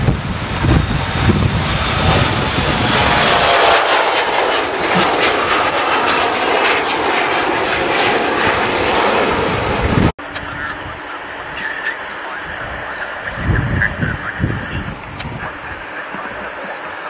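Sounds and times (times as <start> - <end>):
wind rumble on microphone: 0.0 - 3.8, 9.3 - 16.5
jet engines roaring: 0.0 - 17.0.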